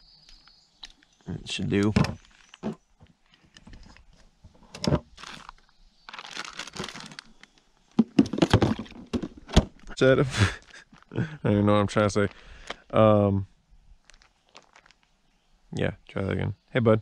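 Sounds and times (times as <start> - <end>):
plastic cooler lid opening: 1.8 - 2.8, 4.6 - 5.5, 8.0 - 9.9
plastic bag crinkling: 5.1 - 7.7, 10.5 - 11.2, 14.0 - 15.1
bottles clacking in cooler: 8.0 - 9.7.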